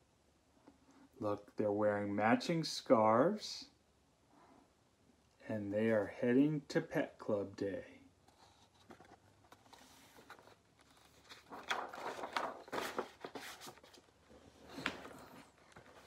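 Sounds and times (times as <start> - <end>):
book pages rustling and flapping: 8.3 - 16.0.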